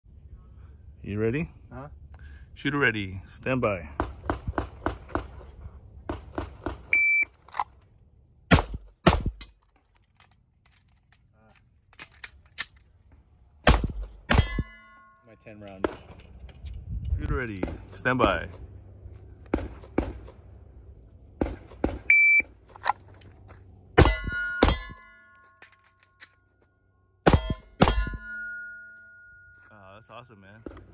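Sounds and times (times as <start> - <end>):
shot timer beep: 7.0 - 7.3, 22.1 - 22.4
pistol shots: 8.5 - 9.5, 13.6 - 14.7, 24.0 - 25.0, 27.2 - 28.3
handgun shots: 8.5 - 9.6, 27.3 - 28.2
metallic ring of steel targets: 13.8 - 16.2, 24.0 - 26.6, 27.2 - 30.3.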